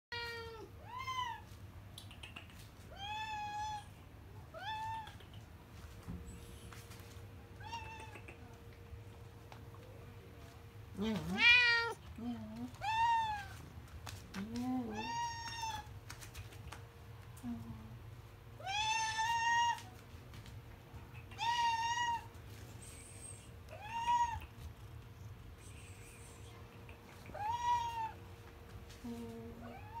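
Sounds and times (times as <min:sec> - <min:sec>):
cats meowing: 0:11.0 - 0:13.6, 0:23.7 - 0:24.7, 0:27.1 - 0:28.2.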